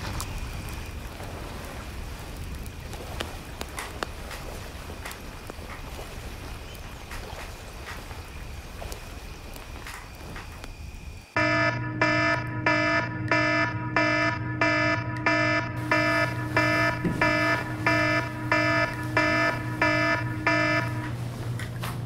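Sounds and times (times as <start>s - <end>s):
electronic alarm beeping: 11.4s - 21.2s.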